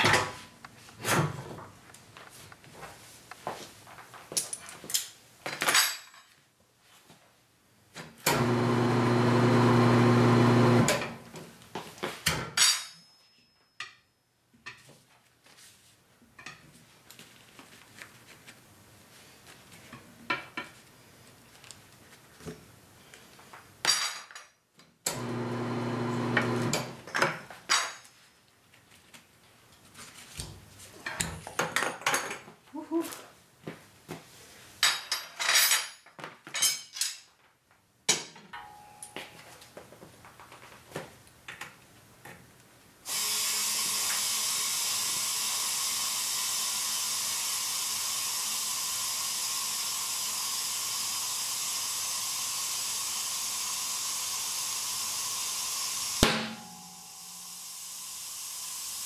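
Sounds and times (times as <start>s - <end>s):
electric motor humming: 8.3s - 10.9s, 25.1s - 26.8s.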